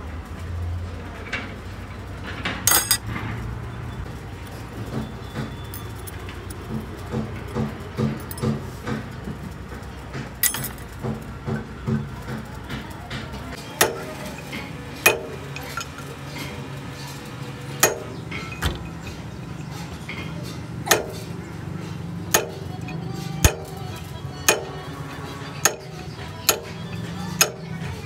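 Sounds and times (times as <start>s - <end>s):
hammer striking steel punch: 13.8s - 16.0s, 17.8s - 21.4s, 22.3s - 27.8s.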